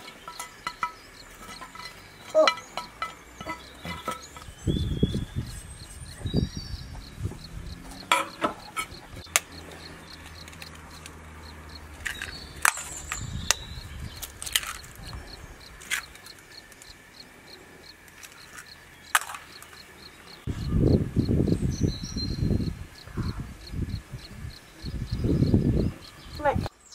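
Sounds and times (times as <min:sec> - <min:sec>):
glass and utensils clinking on pot: 0:00.0 - 0:04.5, 0:08.0 - 0:09.3
insects chirping: 0:00.0 - 0:26.9.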